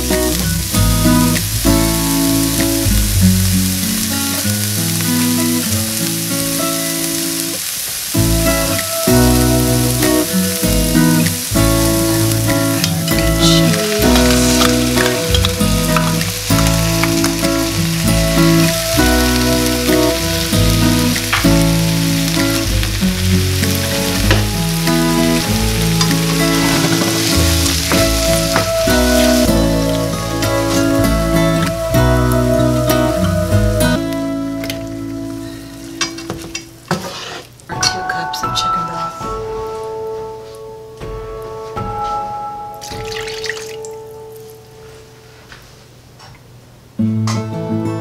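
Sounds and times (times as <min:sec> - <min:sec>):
background music: 0:00.0 - 0:36.8, 0:37.7 - 0:44.9
vegetables sizzling in a frying pan: 0:00.0 - 0:37.6.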